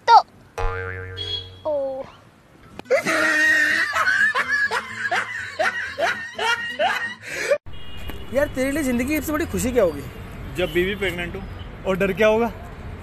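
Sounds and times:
woman laughing: 0:02.9 - 0:07.6.

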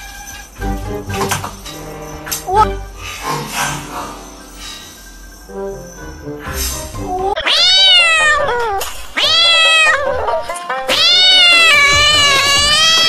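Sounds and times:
cat yowling: 0:07.2 - 0:10.3, 0:10.9 - 0:13.0.

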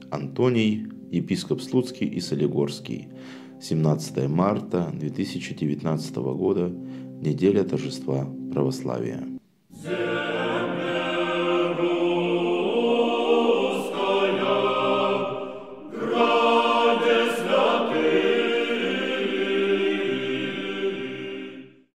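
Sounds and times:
choir singing sustained chords: 0:09.7 - 0:21.9.

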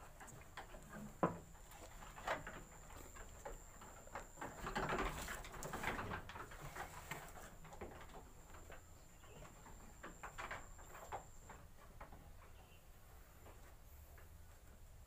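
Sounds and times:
rustling: 0:00.0 - 0:11.6
hooves knocking on boards: 0:00.0 - 0:14.6
sheep shuffling in wooden pen: 0:00.0 - 0:15.0.

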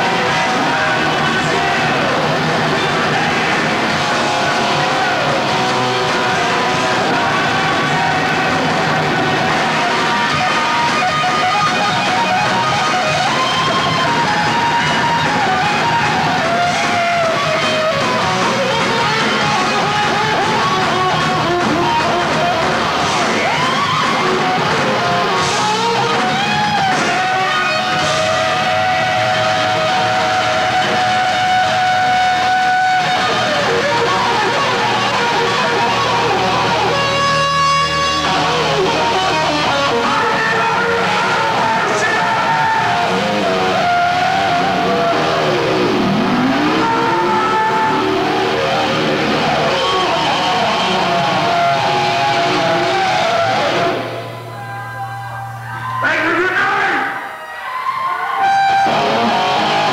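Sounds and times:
electric guitar lead: 0:00.0 - 0:59.9
heavy metal band playing live: 0:00.0 - 0:59.9.

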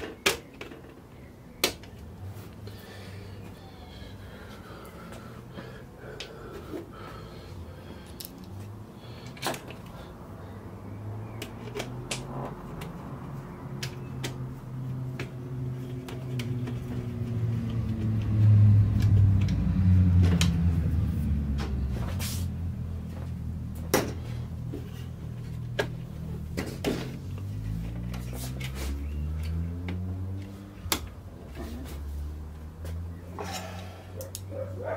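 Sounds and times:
clicks of parts being handled: 0:08.0 - 0:10.0, 0:11.4 - 0:13.0, 0:25.5 - 0:31.2.

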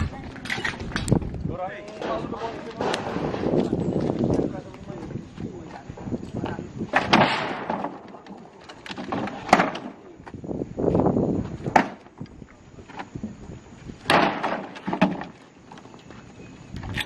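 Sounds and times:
scraping rattle of timber: 0:01.9 - 0:04.0
wooden planks knocking: 0:06.9 - 0:10.0, 0:14.1 - 0:15.4.

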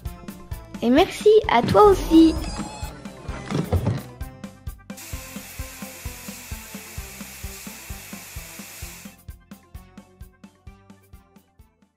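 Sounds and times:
steam locomotive hiss: 0:05.0 - 0:09.2.

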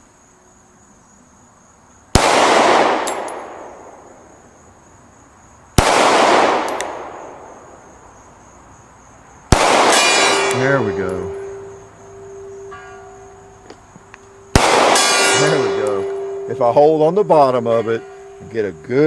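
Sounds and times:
pistol shots echoing: 0:02.1 - 0:04.4, 0:05.8 - 0:07.8, 0:09.5 - 0:11.7, 0:14.5 - 0:16.5.

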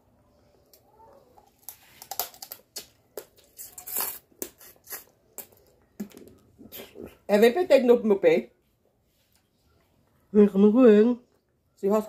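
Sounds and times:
lip smacks and chewing: 0:02.6 - 0:07.3.

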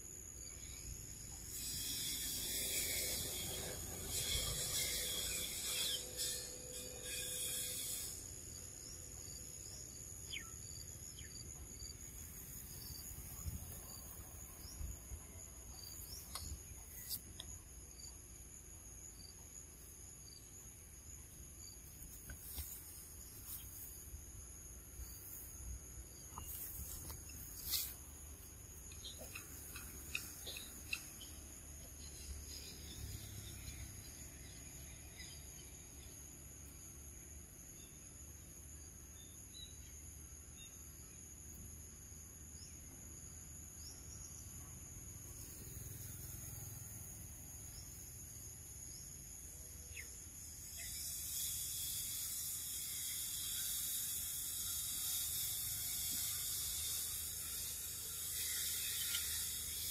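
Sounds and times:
harsh insect buzz: 0:00.0 - 0:37.0, 0:49.9 - 0:59.9
insects droning: 0:00.0 - 0:59.9.

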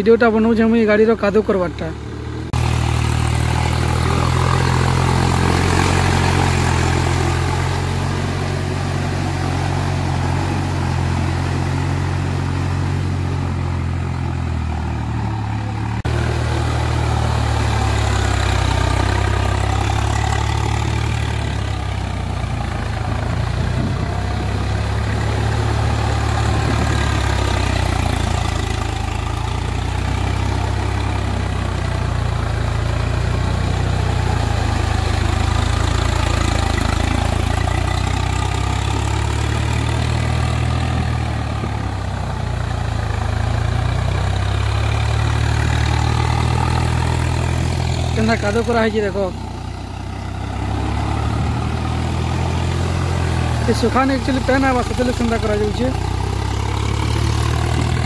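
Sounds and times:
tractor diesel engine running: 0:00.0 - 0:58.0
wheels churning through mud: 0:00.0 - 0:58.0.

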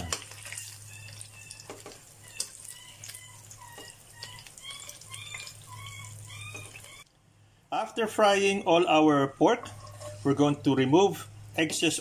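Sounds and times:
oil sizzling in frying pan: 0:00.0 - 0:06.9.

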